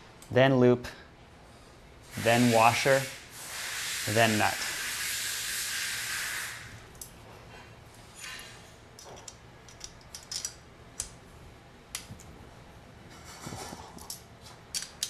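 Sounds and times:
hiss: 2.0 - 6.9
small metal hardware clicking: 9.0 - 11.2, 14.0 - 15.0.

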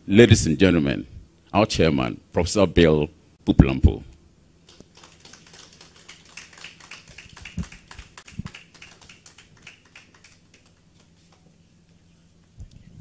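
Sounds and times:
light applause: 4.7 - 11.5.

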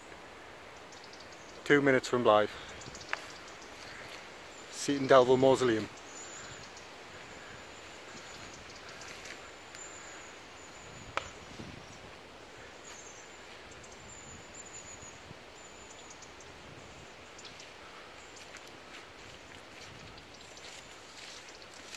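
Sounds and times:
low background hiss: 0.0 - 21.9.

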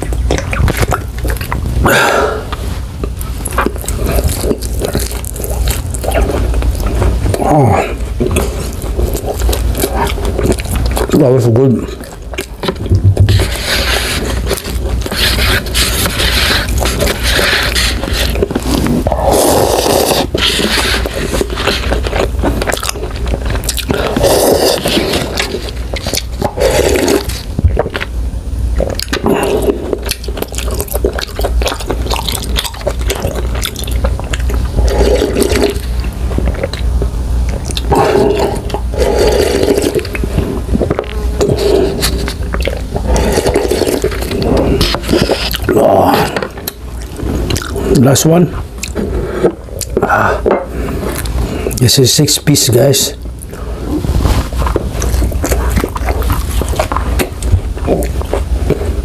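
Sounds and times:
wet mouth clicks and smacks: 0.0 - 1.7, 48.8 - 49.0
slurping noodles and broth: 0.0 - 2.8, 3.5 - 28.1, 28.8 - 36.8, 37.6 - 51.8
wet mouth clicks: 0.0 - 7.5, 28.8 - 47.9, 48.8 - 51.8
person chewing steak: 0.0 - 51.8, 52.7 - 59.0.

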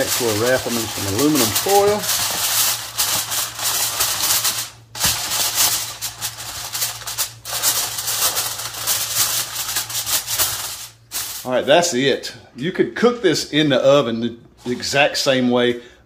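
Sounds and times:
aluminium foil crinkling: 0.0 - 11.6.

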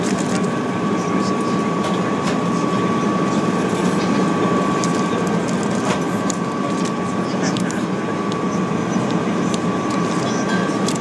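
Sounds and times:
aircraft cabin rush and engine noise: 0.0 - 11.0
faint steady whine: 0.0 - 11.0
snack packets crinkling: 4.8 - 7.8.

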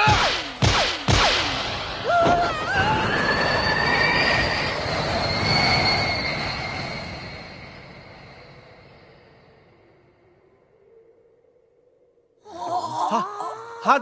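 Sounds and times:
rushing whoosh with whistling squeal: 1.4 - 12.4.

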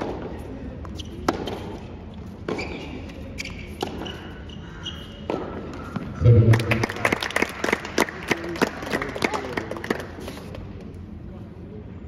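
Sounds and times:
tennis ball bouncing: 1.2 - 1.8, 2.4 - 2.8, 3.7 - 4.2
rackets striking tennis ball: 1.2 - 2.8, 3.4 - 4.2.

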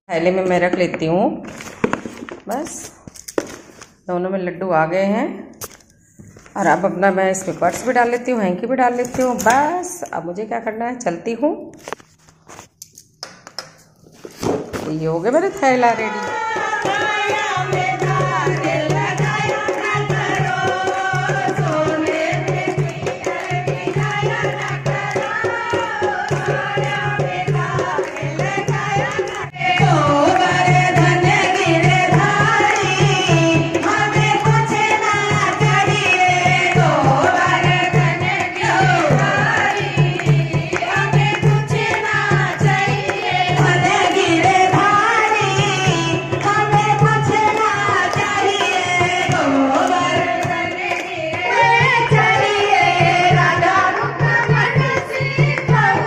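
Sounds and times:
women singing together: 15.3 - 56.0
hand drum beat: 15.5 - 56.0
hand clapping: 26.0 - 30.8, 39.2 - 44.3, 46.3 - 51.9.

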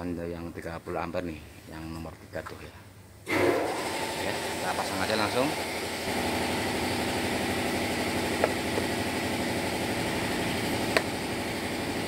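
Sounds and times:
engine idling: 5.8 - 12.0.

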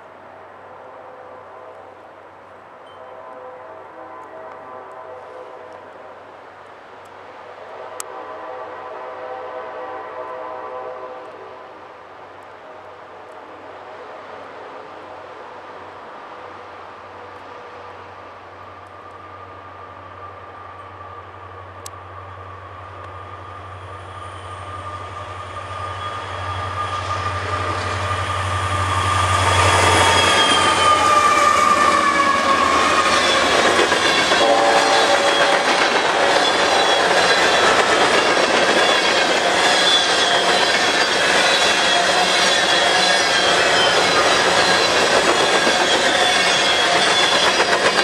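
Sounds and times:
high locomotive whine: 0.0 - 48.0
wheel squeal: 24.2 - 48.0
train wheels clattering on rail joints: 29.4 - 48.0.

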